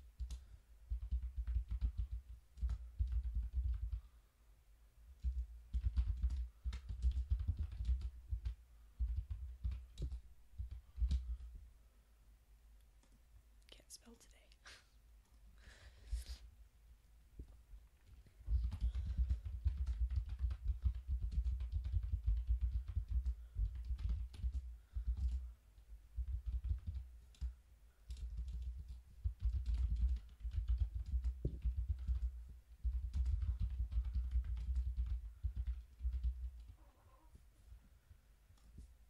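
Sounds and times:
typing on computer keyboard: 0.2s - 4.1s, 5.2s - 11.4s, 18.0s - 25.5s, 26.2s - 36.8s.

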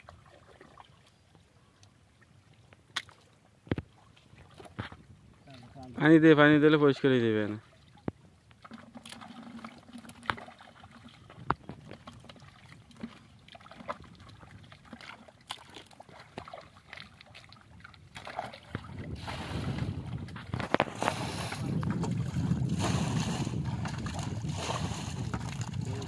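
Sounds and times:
hands sloshing in muddy water: 0.0s - 1.3s, 8.6s - 26.0s
small splashes and drips: 0.0s - 5.9s, 7.5s - 20.4s, 23.8s - 26.0s
wind on microphone: 17.7s - 26.0s.

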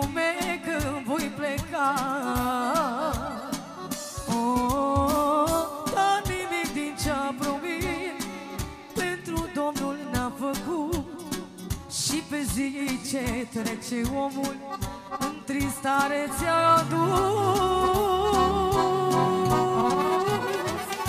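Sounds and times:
keyboards: 0.0s - 21.0s
drum beat: 1.9s - 9.0s, 11.0s - 21.0s
sustained keyboard chords: 14.8s - 21.0s.

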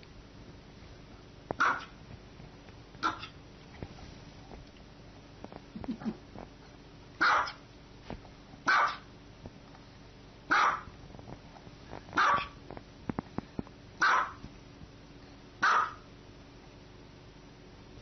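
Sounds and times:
small dog barking: 1.6s - 2.0s, 3.0s - 3.4s, 7.2s - 7.6s, 8.6s - 9.1s, 10.5s - 10.9s, 12.2s - 12.6s, 14.0s - 14.4s, 15.6s - 16.1s.

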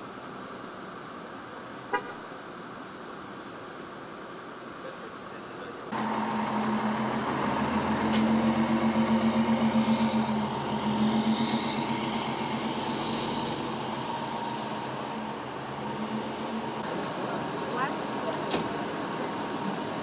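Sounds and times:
diesel engine running: 5.9s - 20.0s.

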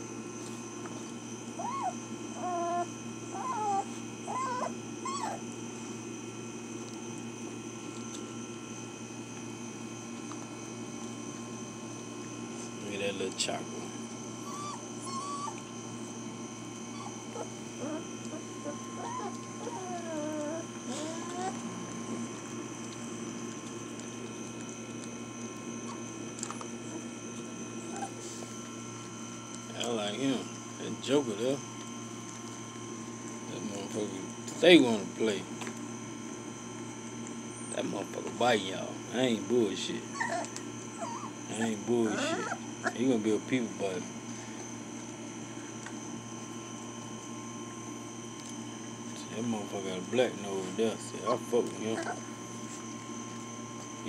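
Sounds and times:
steady background hum: 0.0s - 54.0s
puppy whimpering: 1.5s - 5.7s, 14.4s - 22.4s, 25.7s - 28.6s, 40.0s - 43.2s, 51.2s - 52.4s
puppies scuffling on straw: 26.7s - 35.6s, 49.0s - 54.0s.

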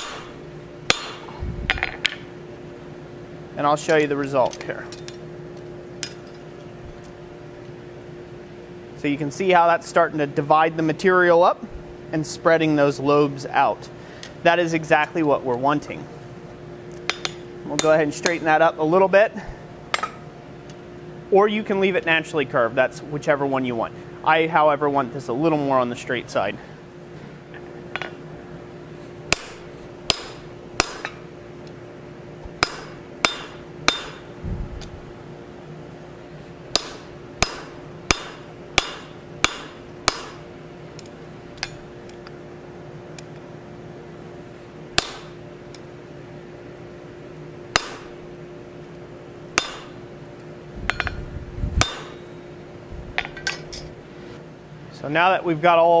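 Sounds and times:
hammer striking iron on anvil: 0.0s - 2.2s, 17.1s - 18.4s, 29.3s - 31.2s, 32.6s - 34.3s, 36.7s - 40.5s, 45.0s - 45.4s, 47.7s - 48.2s, 49.6s - 50.0s, 50.9s - 51.2s, 51.8s - 52.3s
forge hum: 0.0s - 56.0s.

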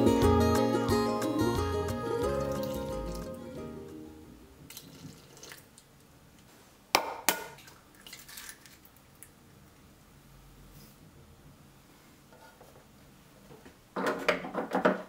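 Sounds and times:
milk trickling into pan: 4.7s - 5.9s.

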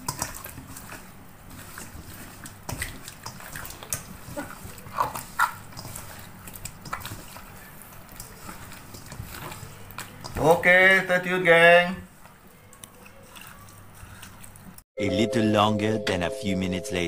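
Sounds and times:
wet squelching of fish: 0.0s - 10.5s.

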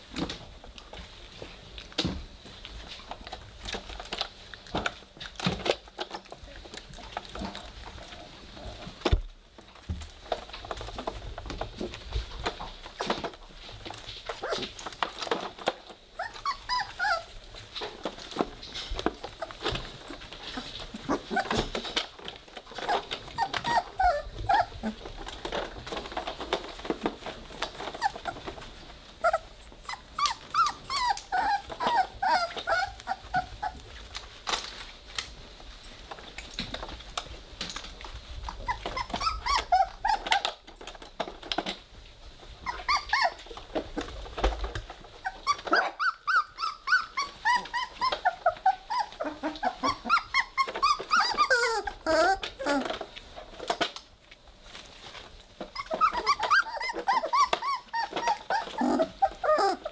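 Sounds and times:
puppies growling: 10.4s - 34.7s, 38.1s - 41.7s, 42.4s - 53.8s, 55.6s - 59.9s
puppies whimpering and squeaking: 11.8s - 34.3s, 38.1s - 41.0s, 42.4s - 53.1s, 55.6s - 59.9s.

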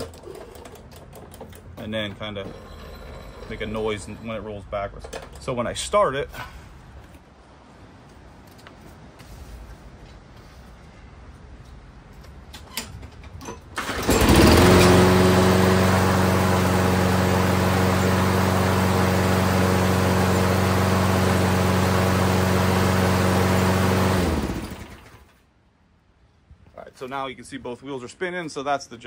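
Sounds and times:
lawn mower engine running: 13.8s - 25.4s.

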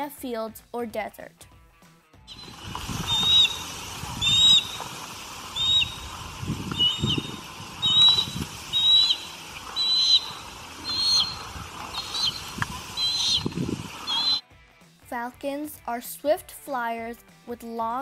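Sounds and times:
bird of prey calling: 2.3s - 14.4s
steady background hiss: 2.3s - 14.4s.

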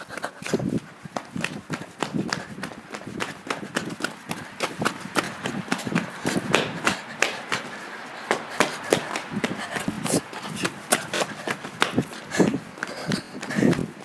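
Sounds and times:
running footsteps on concrete: 0.0s - 14.0s.

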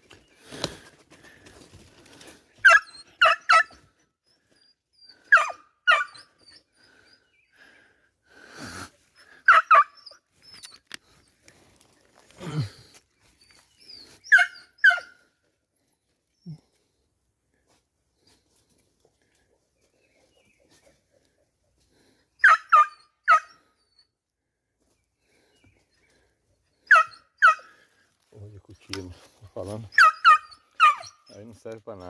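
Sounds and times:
dog barking: 2.6s - 3.8s, 5.3s - 6.2s, 9.5s - 10.0s, 22.4s - 23.6s, 26.9s - 27.7s, 30.0s - 31.1s.

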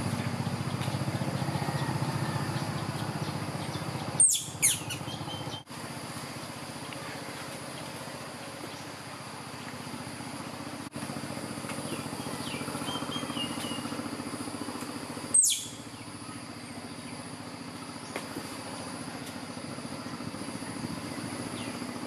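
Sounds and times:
engine running with low pulse: 0.0s - 22.0s
high insect drone: 0.0s - 22.0s
faint bird chirps: 11.8s - 14.0s, 15.3s - 17.3s.

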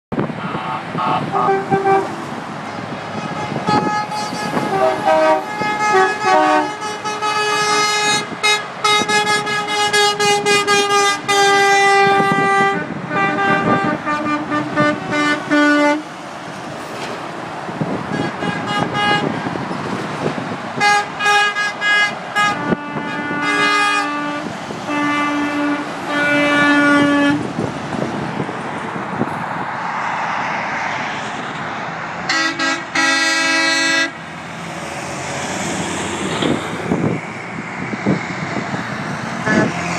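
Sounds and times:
truck horns honking: 0.1s - 16.2s, 17.8s - 19.6s, 20.8s - 27.7s, 32.2s - 34.8s, 38.8s - 39.9s
highway traffic rush: 0.1s - 39.9s.

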